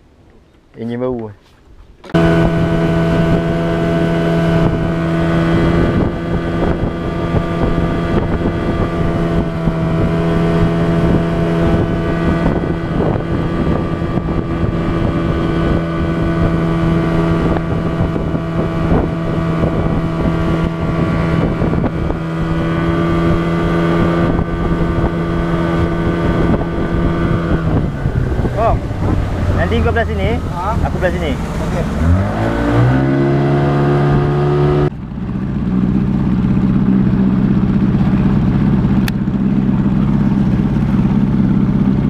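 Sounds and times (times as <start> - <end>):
wind noise on microphone: 2.0 - 35.0
outboard motor running: 2.0 - 42.0.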